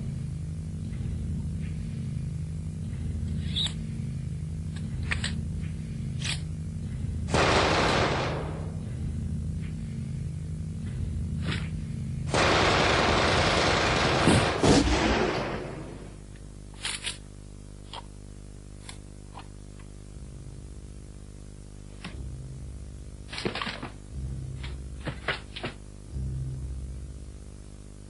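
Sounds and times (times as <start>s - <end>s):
low steady hum: 0.0s - 28.0s.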